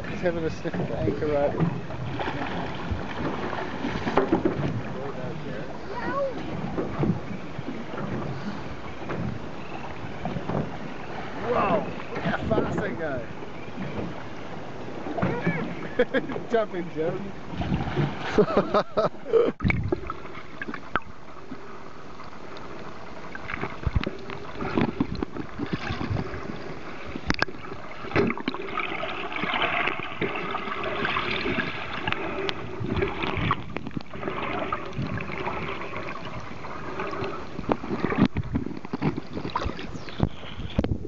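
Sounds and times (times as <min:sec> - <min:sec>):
underwater knocks and clicks: 0:00.0 - 0:05.0, 0:06.3 - 0:08.4, 0:09.0 - 0:10.8, 0:19.6 - 0:21.6, 0:23.3 - 0:28.8, 0:29.4 - 0:41.0
muffled underwater hiss and bubbling: 0:19.2 - 0:40.8
person wading and splashing: 0:23.3 - 0:40.2.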